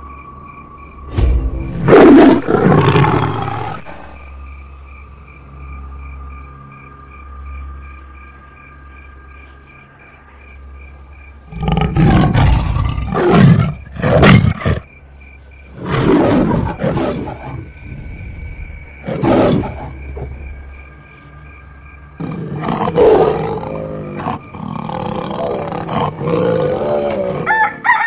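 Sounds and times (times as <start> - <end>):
tiger roaring: 1.8 - 4.3, 11.5 - 14.8, 15.7 - 20.6, 22.2 - 27.5.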